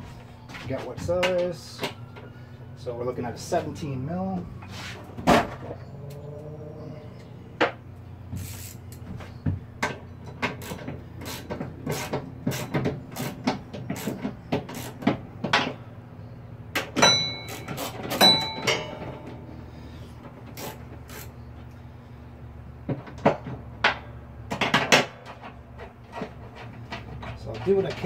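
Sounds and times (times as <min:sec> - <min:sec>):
socket wrench clinking on metal: 0:17.0 - 0:19.3.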